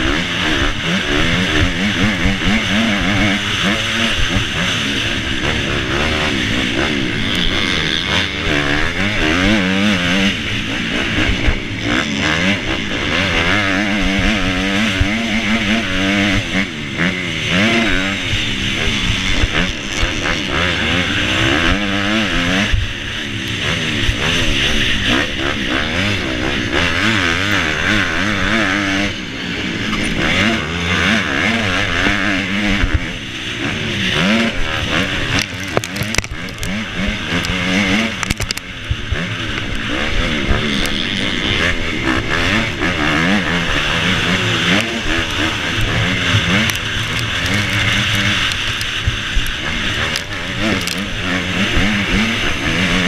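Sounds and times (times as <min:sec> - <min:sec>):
motorbike engine revving: 0:00.0 - 0:53.0
clicks and knocks: 0:35.4 - 0:36.7.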